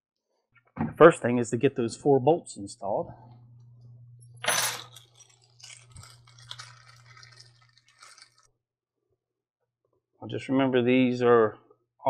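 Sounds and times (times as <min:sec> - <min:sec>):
low steady hum: 0:01.2 - 0:07.8
plastic bag crinkling: 0:04.7 - 0:08.5
plastic bag tearing open: 0:04.8 - 0:08.5.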